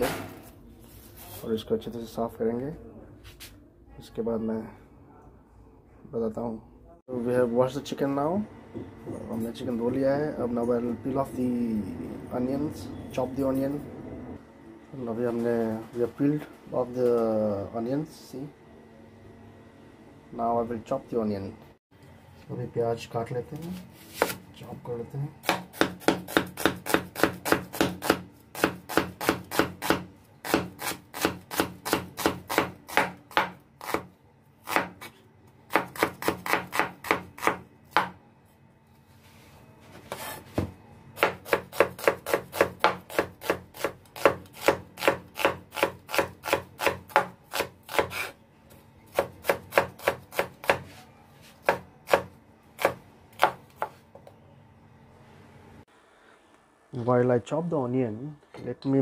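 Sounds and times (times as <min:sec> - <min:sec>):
knife chopping onion on wooden board: 0:25.4 - 0:38.2, 0:40.1 - 0:48.4, 0:49.1 - 0:54.0.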